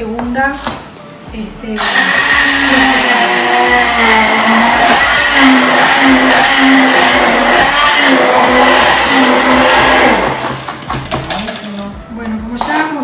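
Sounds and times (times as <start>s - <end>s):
immersion blender motor: 1.8s - 10.7s.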